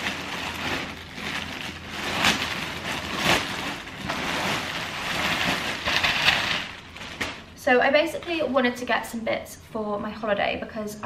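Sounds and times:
packaging rustling: 0:00.0 - 0:07.6.

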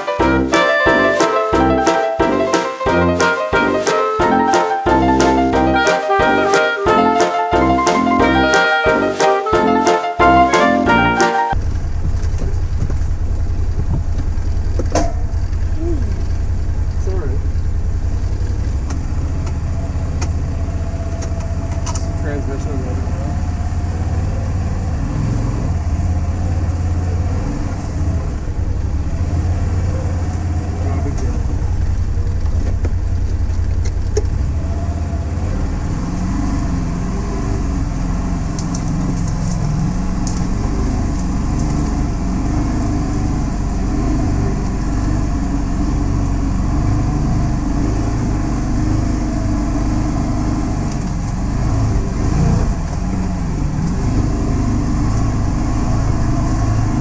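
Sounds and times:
off-road vehicle engine running: 0:11.6 - 0:57.0.

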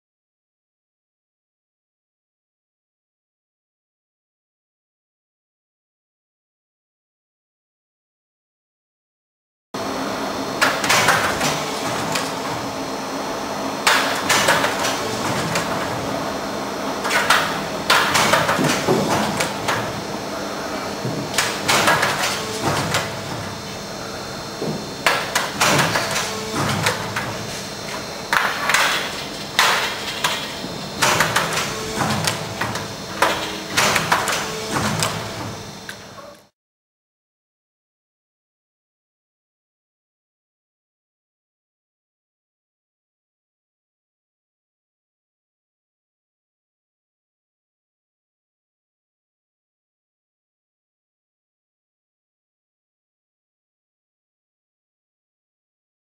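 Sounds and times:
steady machine hum: 0:09.8 - 0:36.5.

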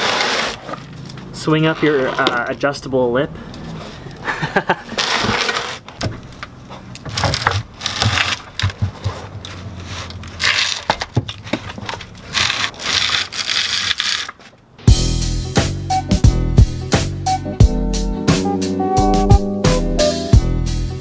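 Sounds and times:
cardboard scraping over concrete: 0:00.0 - 0:02.6, 0:04.9 - 0:14.5.

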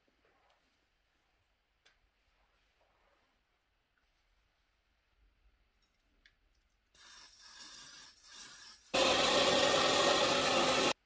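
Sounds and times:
hair dryer blowing: 0:09.0 - 0:11.0.

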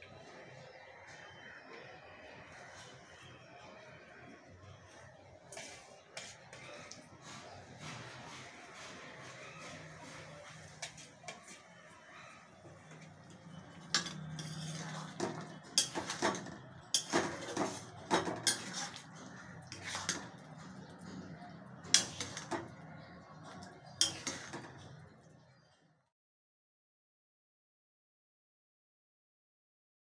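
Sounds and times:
curry bubbling: 0:03.8 - 0:25.2
spatula clanking on metal pan: 0:13.8 - 0:23.1, 0:23.8 - 0:24.9.

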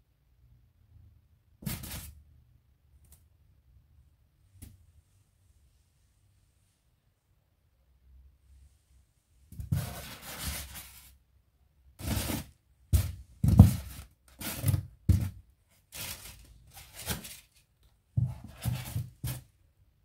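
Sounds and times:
clay figures rubbing and brushing: 0:09.6 - 0:11.2, 0:12.0 - 0:19.5.

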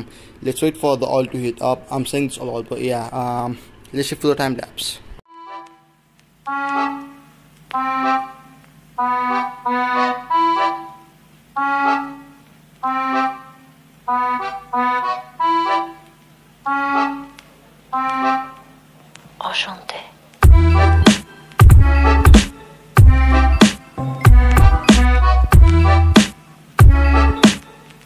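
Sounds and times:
reedy melody: 0:05.3 - 0:18.9, 0:20.4 - 0:28.0.

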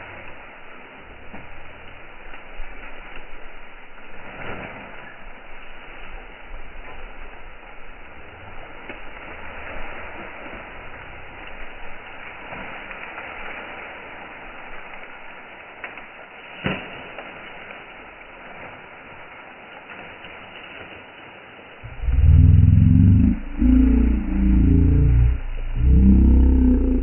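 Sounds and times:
dry stalks rustling and snapping: 0:00.0 - 0:27.0
steady outdoor hiss: 0:00.0 - 0:27.0.

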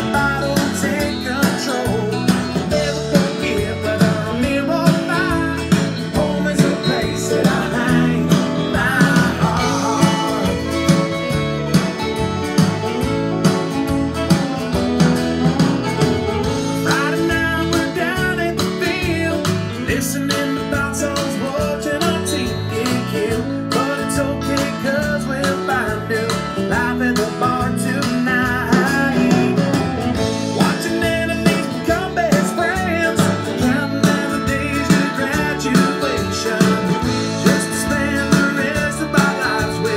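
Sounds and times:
country song with singing and guitar: 0:00.0 - 0:39.9.

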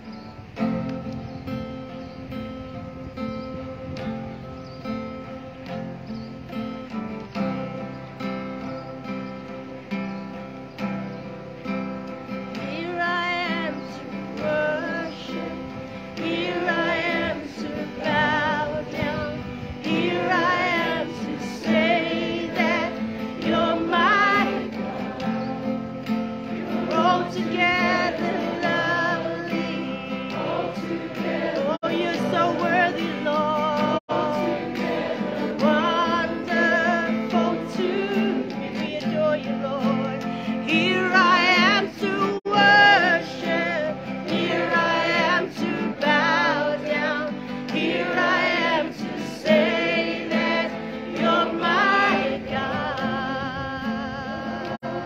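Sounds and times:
strummed acoustic guitar: 0:00.0 - 0:55.0
woman singing: 0:12.5 - 0:25.6, 0:26.5 - 0:55.0.

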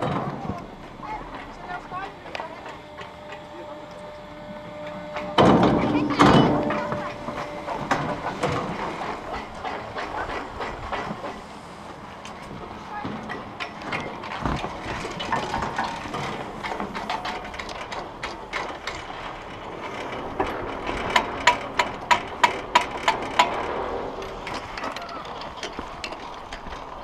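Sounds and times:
chairlift mechanical clicking: 0:00.0 - 0:27.0
chair grip clacking over rollers: 0:12.4 - 0:27.0.

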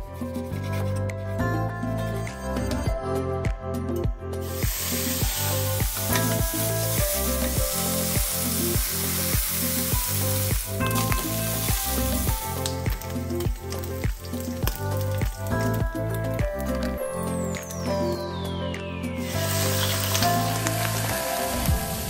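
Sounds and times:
background music with a beat: 0:00.0 - 0:22.0
pork sizzling in a wok: 0:04.4 - 0:15.8, 0:19.2 - 0:22.0.

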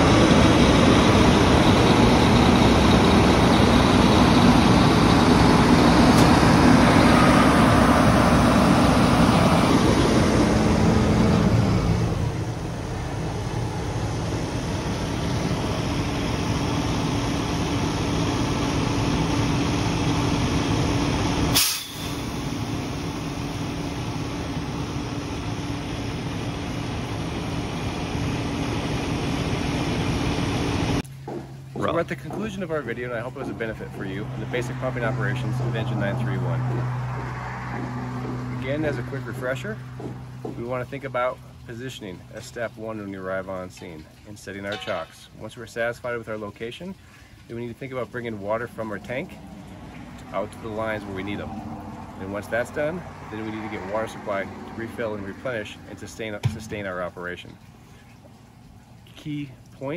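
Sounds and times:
fire engine diesel and pump running: 0:00.0 - 0:45.4, 0:46.4 - 0:59.9
single sharp sound: 0:21.6 - 0:22.3.

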